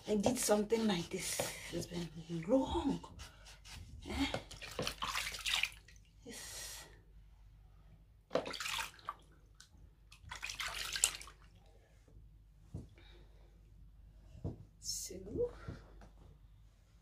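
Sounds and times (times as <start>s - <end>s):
water splashing in plastic basin: 4.5s - 6.0s, 8.3s - 11.5s.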